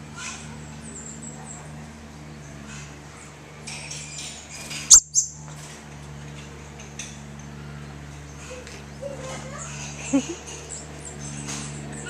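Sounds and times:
high bird chirps: 4.9s - 5.4s.

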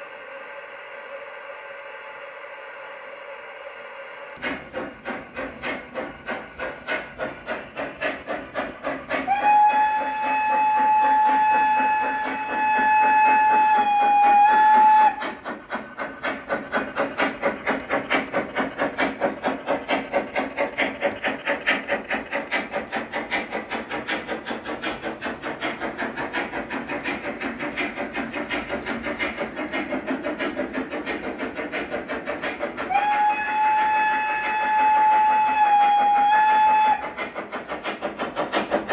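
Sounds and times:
model steam locomotive chuffing: 0.0s - 38.9s
steam whistle blast: 9.2s - 15.2s, 32.8s - 37.1s.

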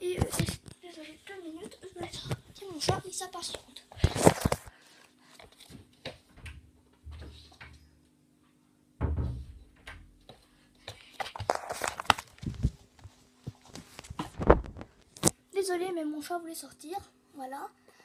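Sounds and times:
door thumps: 9.0s - 10.1s.

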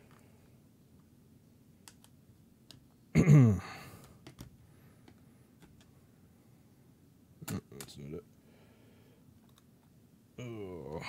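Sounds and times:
man sighing: 3.4s - 4.2s.

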